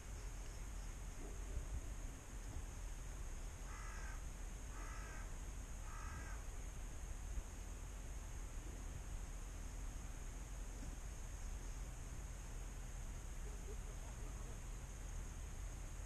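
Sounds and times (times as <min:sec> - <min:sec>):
steady low rumble: 0:00.0 - 0:16.0
crow cawing: 0:03.6 - 0:06.5.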